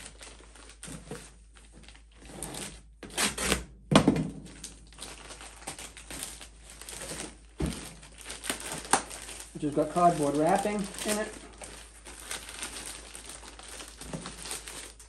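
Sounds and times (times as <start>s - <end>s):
plastic and cardboard crinkling: 0.0s - 3.4s, 4.4s - 15.0s.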